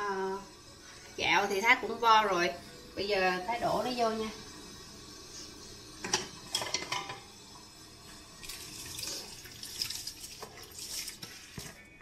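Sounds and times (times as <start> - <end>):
rice pouring into boiling water: 3.6 - 11.8.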